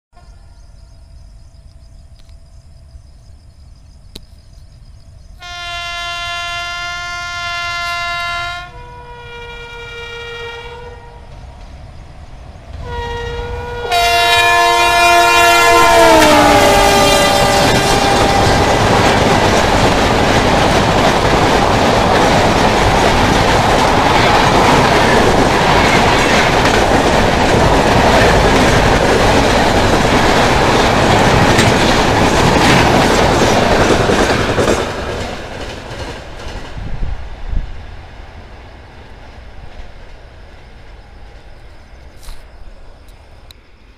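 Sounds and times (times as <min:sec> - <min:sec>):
locomotive horn blasts: 0:05.4 - 0:11.3, 0:12.8 - 0:18.9
train coaches rushing and clattering: 0:11.2 - 0:43.4.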